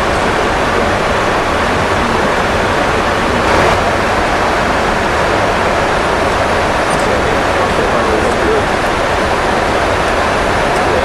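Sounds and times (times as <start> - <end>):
jet engines and airflow roar: 0.0 - 11.0.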